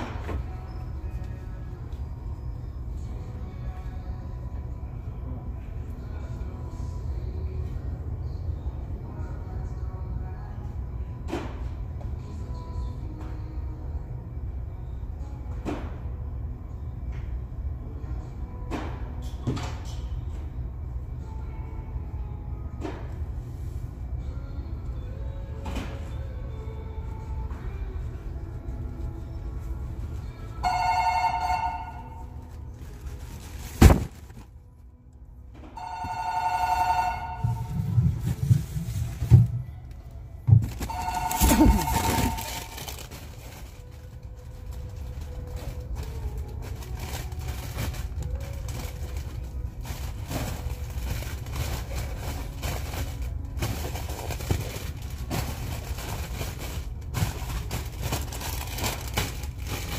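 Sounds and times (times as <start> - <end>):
low background hum: 0.0 - 59.9
two-tone electronic ring: 30.6 - 32.2, 35.8 - 37.7, 40.9 - 42.5
thuds: 33.6 - 34.5.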